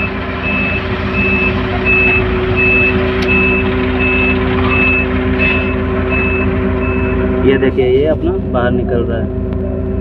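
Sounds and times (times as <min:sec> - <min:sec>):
high-pitched warning beeper: 0:00.0 - 0:07.6
crane engine and hydraulics: 0:00.0 - 0:07.7.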